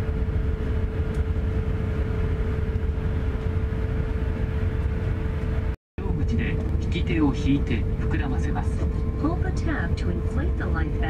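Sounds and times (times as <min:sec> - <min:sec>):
airliner cabin rumble: 0:00.0 - 0:11.0
mid-pitched hum: 0:00.0 - 0:11.0.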